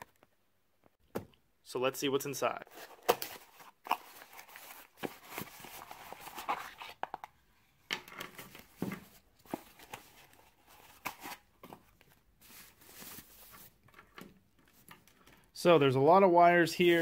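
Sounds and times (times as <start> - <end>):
tissue paper crinkling: 12.4 - 13.8.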